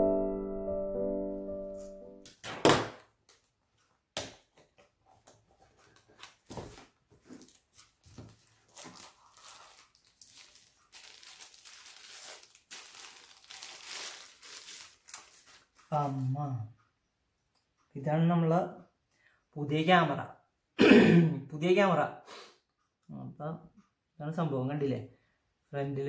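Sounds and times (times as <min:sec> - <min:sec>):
packaging clicks and scrapes: 0:05.6 - 0:15.7
wrapping crinkling: 0:05.7 - 0:16.2.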